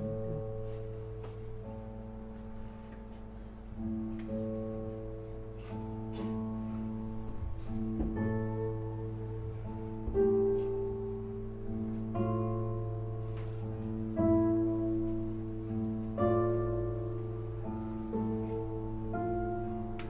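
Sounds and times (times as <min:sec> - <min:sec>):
classical guitars playing chords: 0:00.0 - 0:20.0.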